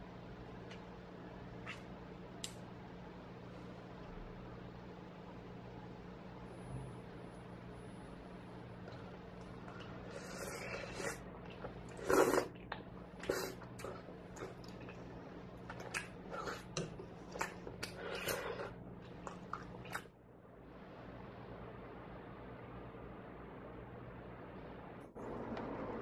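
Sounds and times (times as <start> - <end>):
wet chewing and slurping: 8.9 - 20.1.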